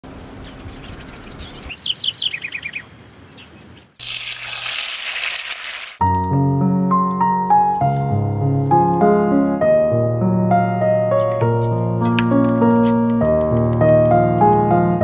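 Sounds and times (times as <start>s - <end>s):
birds chirping: 0.0s - 4.0s
oil sizzling in frying pan: 4.0s - 6.0s
piano music: 6.0s - 15.0s.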